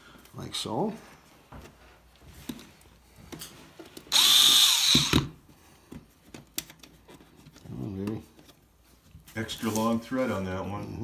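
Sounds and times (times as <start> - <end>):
power screwdriver whining: 4.1 - 5.4.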